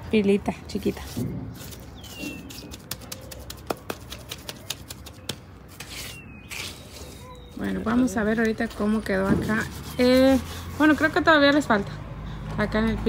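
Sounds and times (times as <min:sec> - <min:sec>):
trowel scraping cement mortar: 0:05.7 - 0:11.2.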